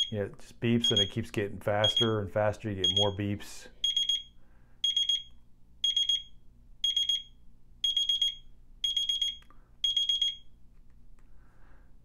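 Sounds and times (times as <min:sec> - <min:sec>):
alarm clock beeping: 0:00.0 - 0:00.2, 0:00.8 - 0:01.2, 0:01.8 - 0:02.2, 0:02.8 - 0:10.5.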